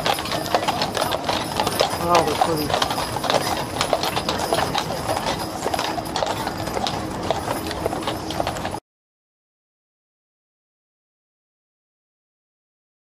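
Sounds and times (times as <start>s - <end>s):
horse hooves clip-clopping: 0.0s - 8.8s.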